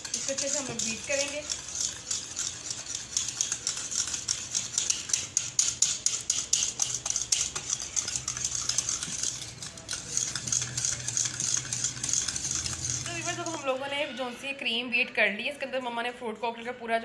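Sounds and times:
whisk clicking against bowl: 0.0s - 13.8s.

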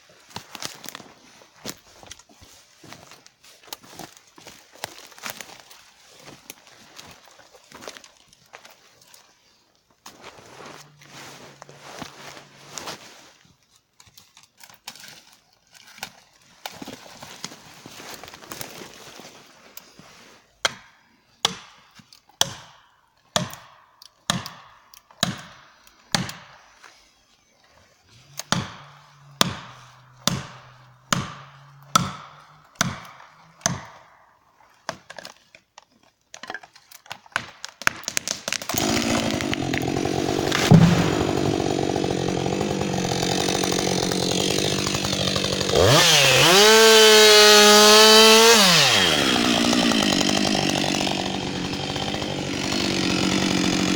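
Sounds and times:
chainsaw idling and revving: 38.7s - 53.9s
hammer blows on felling wedge: 38.7s - 53.9s.

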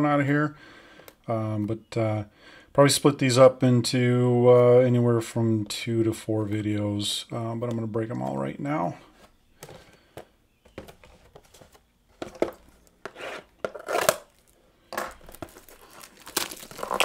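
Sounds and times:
cellophane crinkling: 13.7s - 17.0s.

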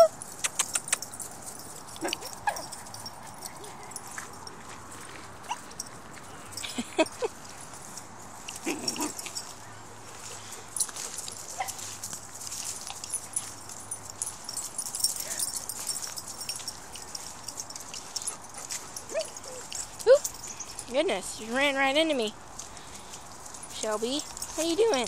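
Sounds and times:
paws scuffing on gravel: 0.2s - 25.0s
dogs yelping and whining: 1.8s - 4.2s, 14.8s - 20.9s.

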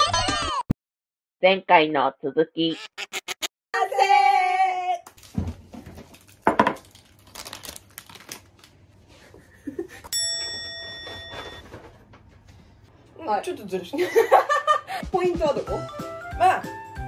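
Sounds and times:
plastic wrapper crinkling and tearing: 5.1s - 9.0s
bell-like ding: 10.1s - 11.7s.

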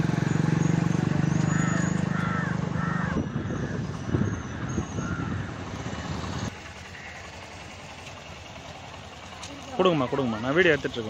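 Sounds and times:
vehicle engine hum: 0.0s - 11.0s.

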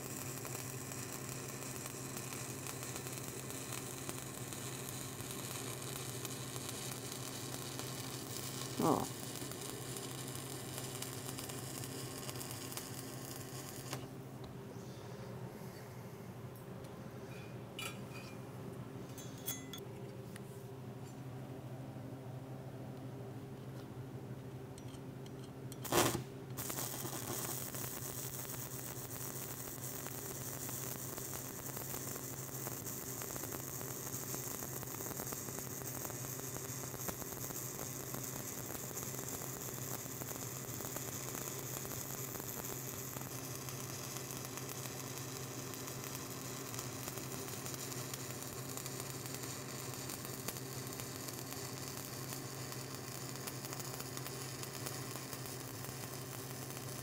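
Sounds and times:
welding arc crackling sizzle: 0.0s - 14.3s, 25.7s - 57.0s.

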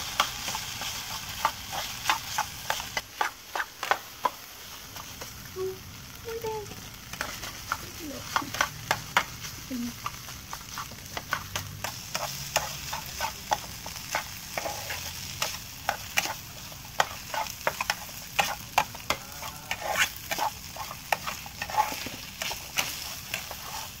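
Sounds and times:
food sizzling: 0.0s - 24.0s
metal spatula scraping pan: 10.0s - 24.0s.

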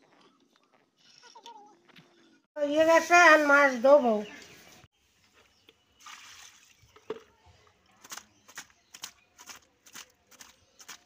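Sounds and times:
water sloshing and splashing: 6.0s - 7.3s.

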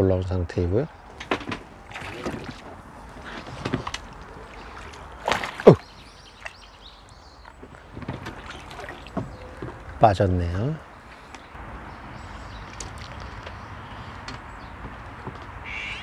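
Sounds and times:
fish splashing at surface: 3.4s - 6.6s, 8.2s - 9.9s.

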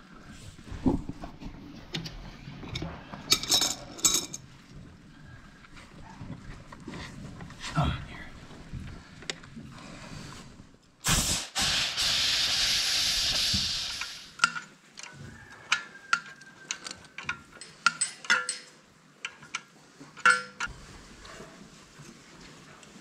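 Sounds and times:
hiss: 11.0s - 14.5s
small metal clinks and taps: 14.4s - 20.7s.

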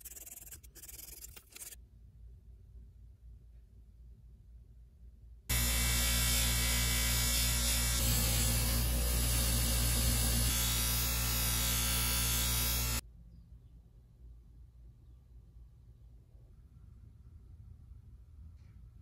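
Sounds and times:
bench grinder motor humming: 5.5s - 13.0s.

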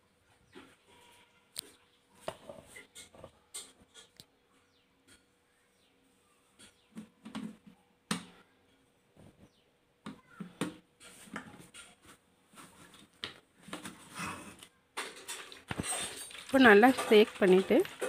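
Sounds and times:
liquid sloshing: 15.0s - 18.0s
plastic jar knocking and rattling: 15.0s - 18.0s.

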